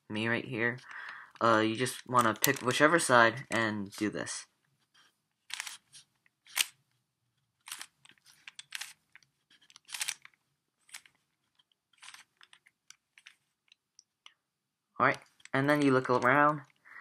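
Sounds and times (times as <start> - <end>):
plastic cube clacking: 1.0 - 2.8, 5.4 - 6.8, 7.6 - 14.4.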